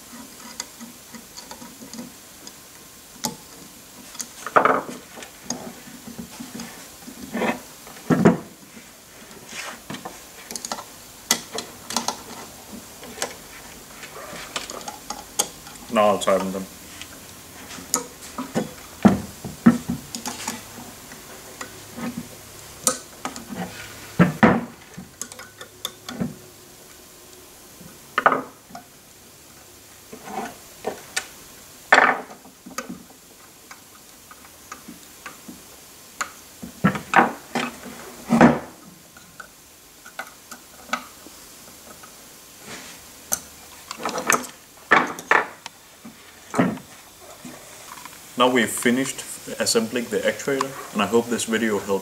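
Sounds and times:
screwdrivers put down on wood: 4.5s - 5.0s.

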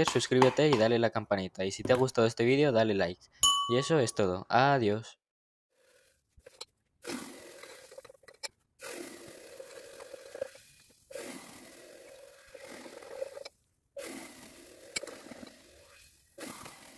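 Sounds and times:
glass rod clinking: 3.4s - 4.2s
rod scraping wet crystals: 5.8s - 16.9s.

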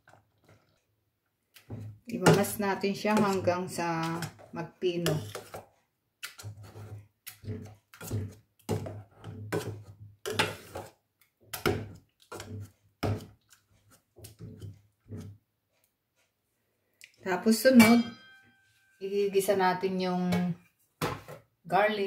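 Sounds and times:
wooden spoon mashing in saucepan: 1.5s - 16.4s.

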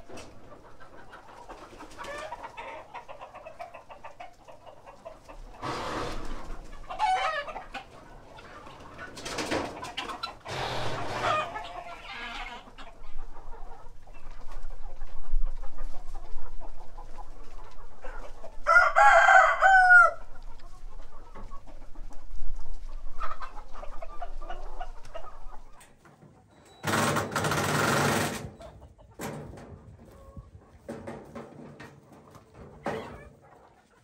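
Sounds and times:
chickens clucking: 0.0s - 34.0s
rooster crowing: 18.7s - 20.2s.

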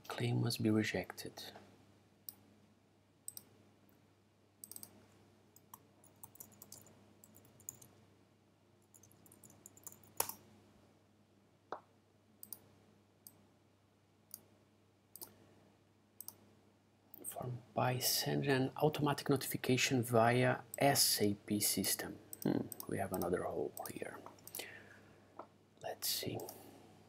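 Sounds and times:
faint low hum: 0.0s - 27.0s
keyboard typing: 4.6s - 5.0s, 5.6s - 7.9s, 8.9s - 10.4s, 22.3s - 24.6s
mouse clicks: 4.6s - 5.0s, 9.0s - 10.4s, 15.1s - 15.4s.

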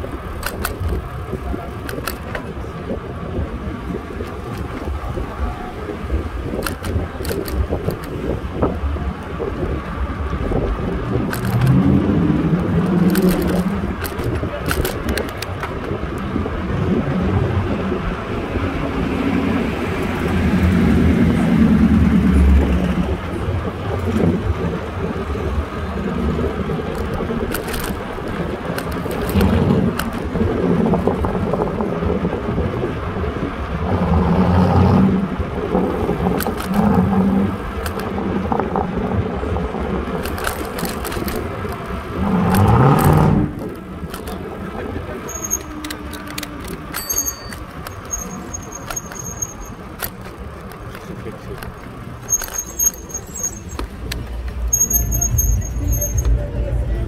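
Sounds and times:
city street traffic: 0.0s - 57.0s.

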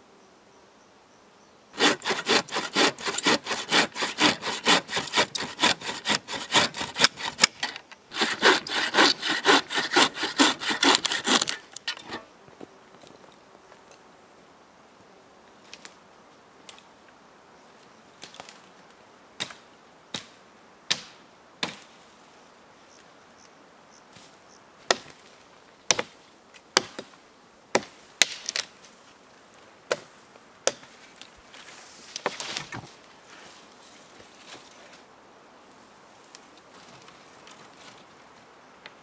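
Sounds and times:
hatchet chopping branches: 1.8s - 12.2s, 20.2s - 21.9s, 24.9s - 25.2s, 25.9s - 26.1s, 26.8s - 27.1s, 27.7s - 28.7s, 29.9s - 30.9s
rustle of cut boughs: 27.8s - 35.1s.

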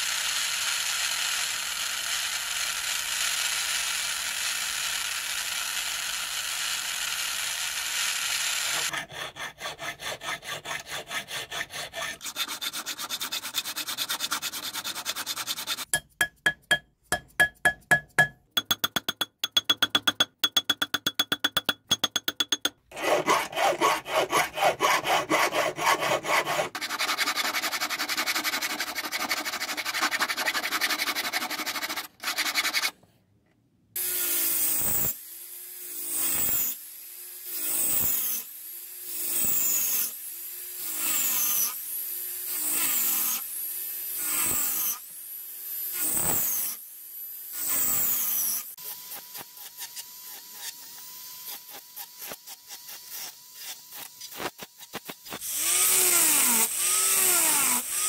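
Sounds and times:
hand file rasping on metal: 8.7s - 33.0s.

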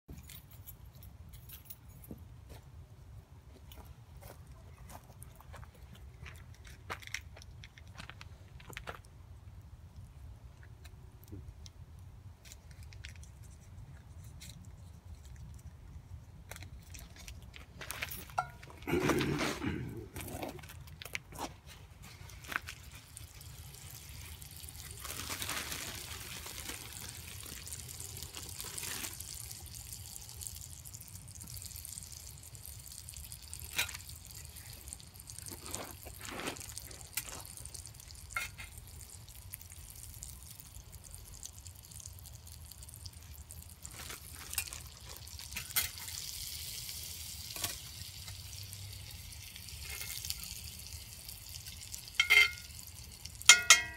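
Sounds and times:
bread frying in a pan: 21.8s - 53.9s.

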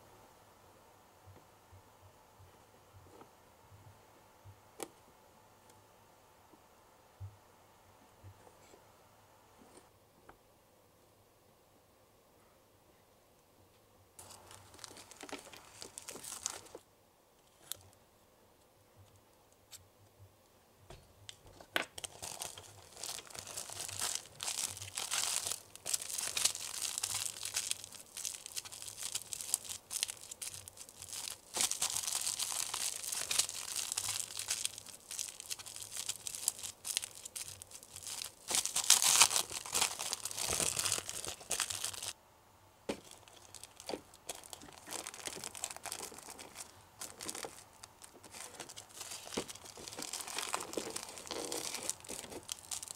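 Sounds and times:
plastic packet crinkling and tearing: 14.2s - 16.8s, 22.0s - 42.2s, 42.9s - 52.9s.

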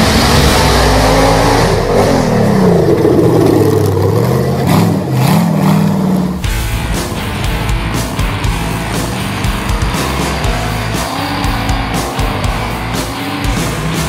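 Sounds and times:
buggy engine revving hard: 0.0s - 14.0s.

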